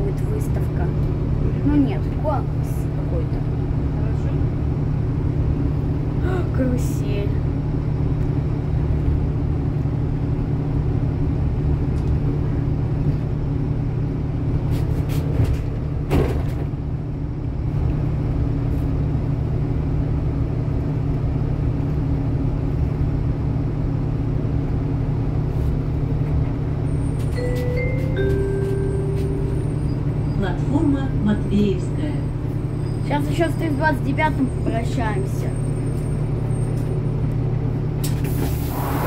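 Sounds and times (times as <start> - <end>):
bus engine rumbling: 0.0 - 39.0
short electronic chime: 27.4 - 30.0.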